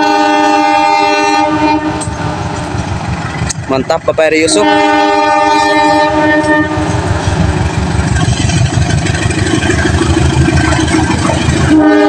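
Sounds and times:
train horn: 0:00.0 - 0:02.2, 0:04.4 - 0:07.0, 0:11.6 - 0:12.0
locomotive engine rumbling: 0:00.0 - 0:12.0.

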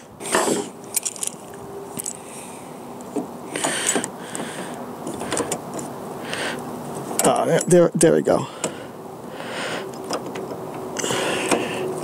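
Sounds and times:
plastic and metal scraping and clicking: 0:05.0 - 0:05.9.

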